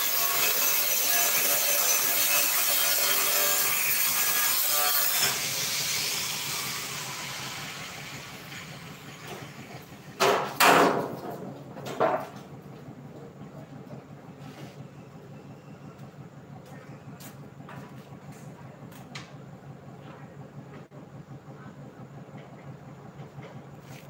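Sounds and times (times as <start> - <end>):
electric grinder cutting steel: 0.0 - 9.2.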